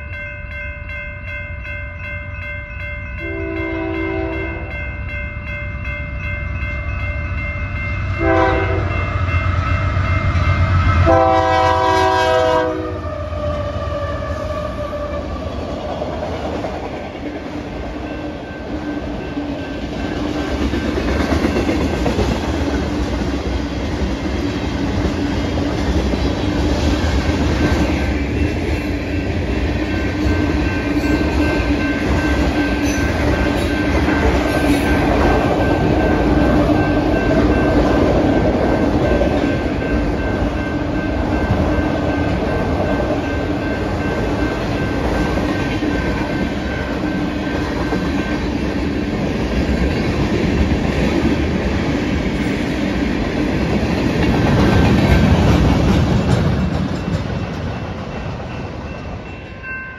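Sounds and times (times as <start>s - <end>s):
grade crossing bells ringing: 0.0s - 12.5s, 16.4s - 23.5s, 27.4s - 51.8s, 57.1s - 59.9s
freight train rumble and wheel clatter: 0.0s - 59.9s
locomotive horn blasts: 3.2s - 4.7s, 8.2s - 9.0s, 11.0s - 15.2s.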